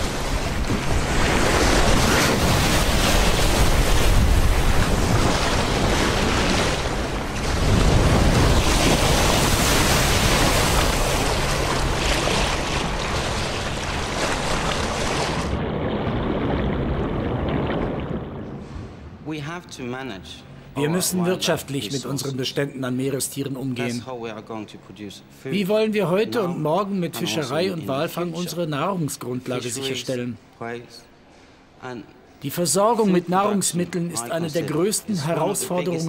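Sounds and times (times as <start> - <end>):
seawater surging and splashing: 0.0 - 19.2.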